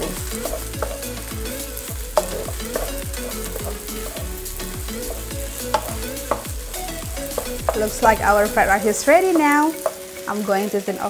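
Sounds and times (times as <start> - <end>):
wooden spatula scraping a wok: 0.0 - 10.3
rice sizzling in a wok: 0.0 - 11.0
spatula tapping against pan: 0.3 - 1.1, 2.2 - 4.2, 4.9 - 8.6, 9.2 - 10.1.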